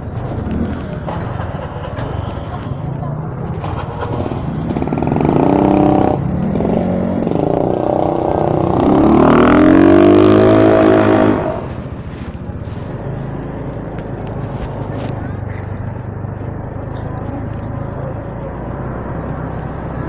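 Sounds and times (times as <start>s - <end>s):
motorcycle engine revving: 0.0s - 20.0s
street traffic: 0.0s - 20.0s.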